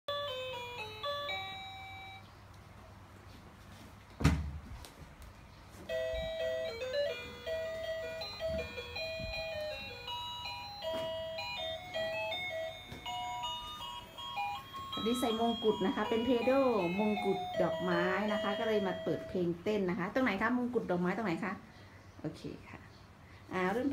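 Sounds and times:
thump: 4.2s - 4.7s
toy cash register beeping tune: 5.9s - 19.3s.

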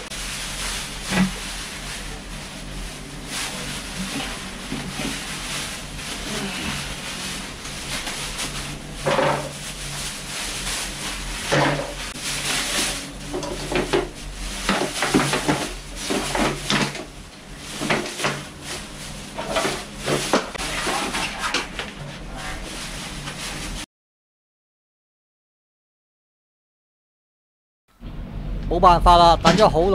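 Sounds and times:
plastic bag rustling: 0.0s - 23.8s.

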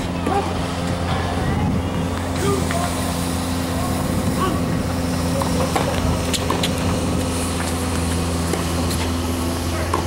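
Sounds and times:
low engine-like hum: 0.0s - 10.0s
tennis ball hits: 5.4s - 7.0s.

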